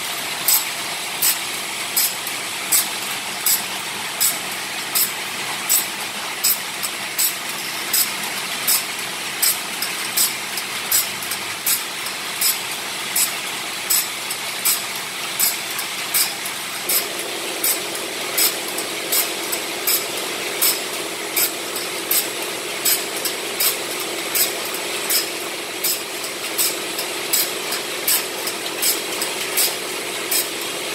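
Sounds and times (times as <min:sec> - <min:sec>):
grinding wheel rasping: 0:00.0 - 0:12.6, 0:13.2 - 0:30.9
motor humming: 0:16.8 - 0:30.9.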